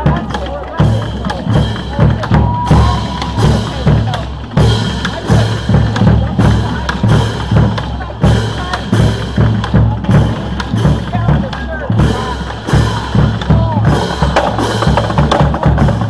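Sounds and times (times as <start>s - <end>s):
bass drum: 0.0s - 16.0s
snare drums: 0.0s - 16.0s.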